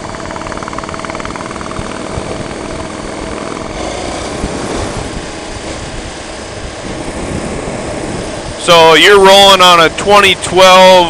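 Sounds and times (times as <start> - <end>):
motorcycle engine throb: 0.0 - 11.0
road noise: 0.0 - 11.0
wind noise: 0.0 - 11.0.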